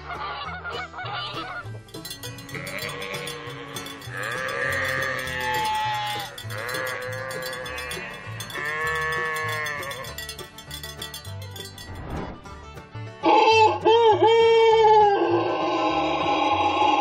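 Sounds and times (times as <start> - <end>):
long livestock calls: 2.3 - 10.2.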